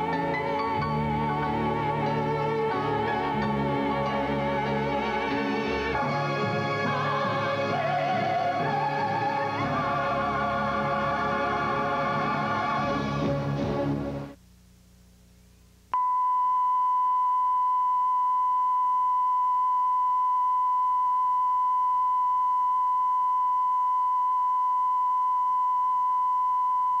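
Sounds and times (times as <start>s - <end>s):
faint hum: 14.4s - 27.0s.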